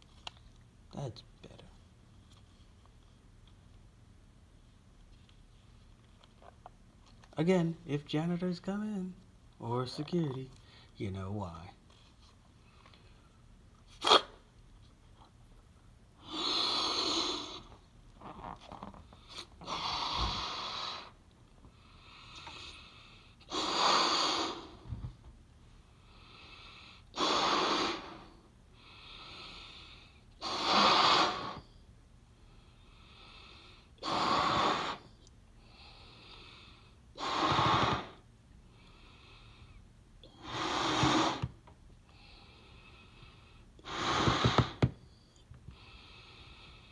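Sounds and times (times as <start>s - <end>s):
quiet in-breaths: 10.3s - 11.0s, 11.9s - 13.6s, 35.0s - 37.2s, 38.6s - 40.6s, 41.4s - 46.9s
person blowing up a balloon: 13.9s - 14.4s, 16.2s - 21.2s, 23.4s - 24.8s, 27.1s - 28.3s, 30.4s - 31.7s, 34.0s - 35.1s, 37.2s - 38.2s, 40.2s - 41.6s, 43.8s - 45.0s.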